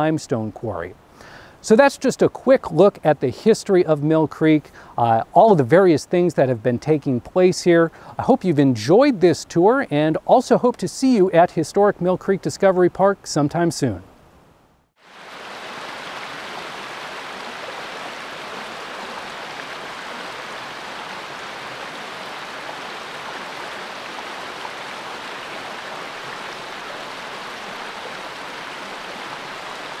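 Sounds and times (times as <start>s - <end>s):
water rushing over rocks: 15.0s - 30.0s.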